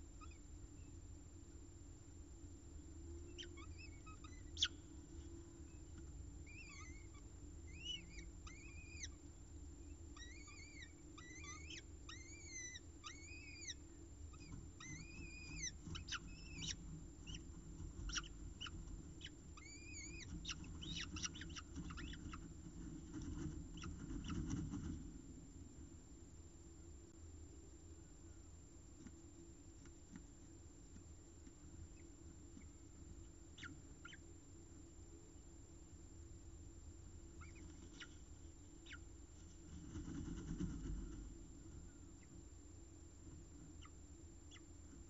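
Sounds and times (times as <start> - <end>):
falcon chicks begging calls: 6.5 - 9.2, 10.2 - 22.5.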